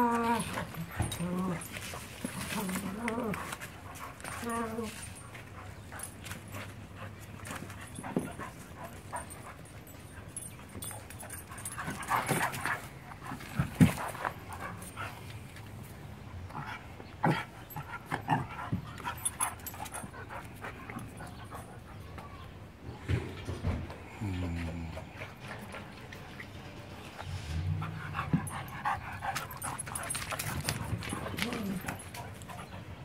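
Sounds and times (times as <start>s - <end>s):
dogs scuffling: 0.0s - 16.0s, 25.3s - 33.0s
dogs playing: 0.0s - 33.0s.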